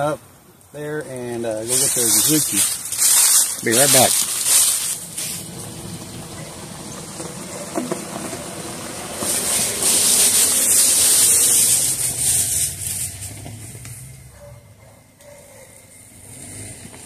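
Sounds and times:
tyres hissing on gravel: 0.8s - 14.4s
car engine running: 1.5s - 14.6s.

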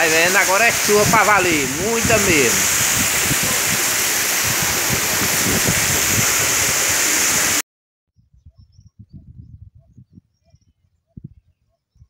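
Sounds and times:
heavy rain pouring: 0.0s - 7.6s
water gushing off roof spouts: 0.0s - 7.6s.

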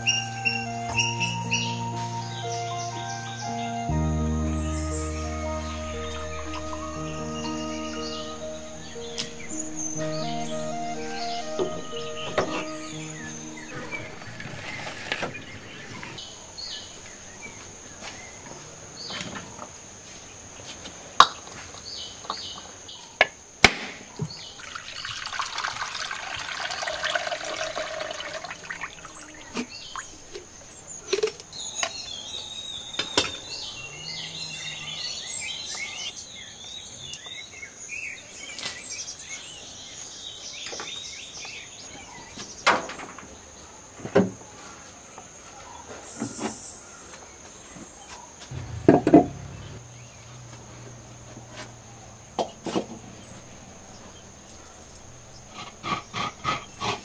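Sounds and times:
birds chirping: 0.0s - 19.2s, 24.1s - 42.7s, 45.5s - 50.9s
insect droning: 0.0s - 23.4s, 24.1s - 36.5s
water-like rushing: 24.6s - 30.2s.

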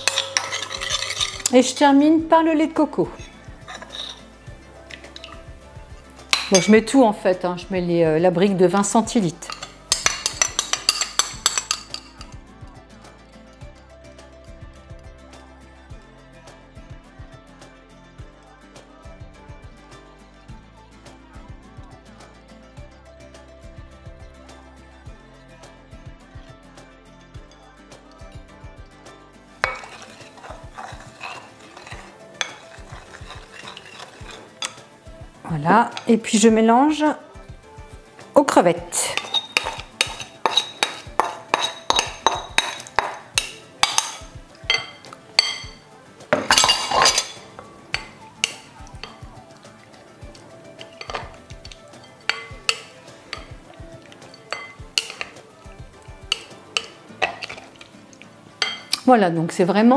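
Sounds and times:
spatula scraping a bowl: 0.0s - 1.6s, 3.1s - 6.7s, 29.6s - 34.9s, 38.9s - 45.8s, 46.4s - 49.3s, 50.6s - 55.6s, 56.3s - 57.9s.

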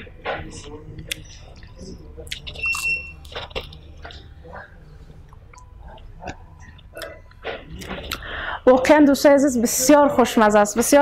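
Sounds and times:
person chewing: 0.7s - 8.3s.

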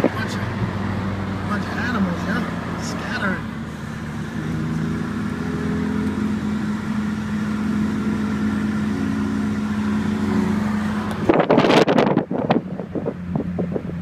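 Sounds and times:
car engine and road noise: 0.0s - 14.0s
wind noise on microphone: 11.0s - 14.0s.

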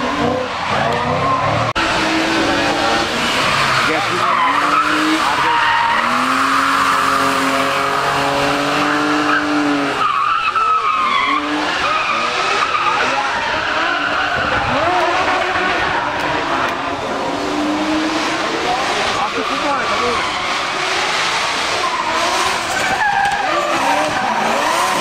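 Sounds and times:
car engine at high revs: 0.0s - 25.0s
tyres squealing: 2.8s - 17.0s, 19.0s - 25.0s.

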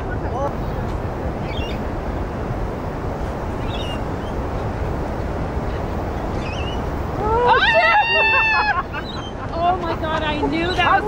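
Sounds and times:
wind rumble on microphone: 0.0s - 11.0s
faint high chirps: 6.3s - 6.9s.

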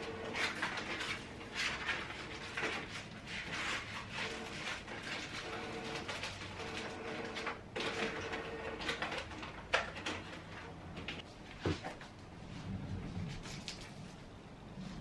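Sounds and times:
printer hum: 0.0s - 11.2s
printer whirring and clicking: 0.0s - 11.2s.

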